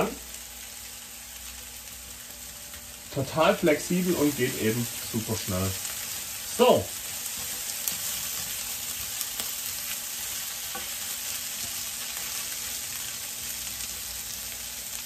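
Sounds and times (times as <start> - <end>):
food sizzling in a pan: 0.0 - 15.0.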